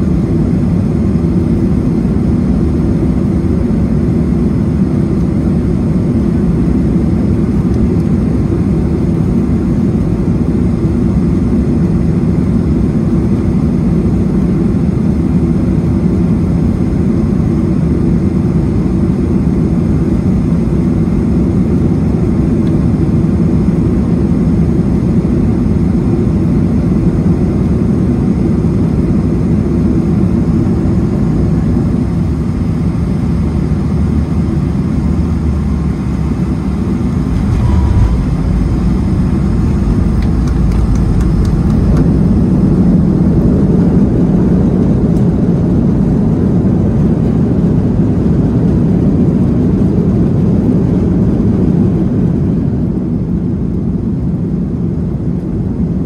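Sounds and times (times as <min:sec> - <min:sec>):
jet engine roar in cabin: 0:00.0 - 0:56.0
rushing air: 0:36.6 - 0:46.0.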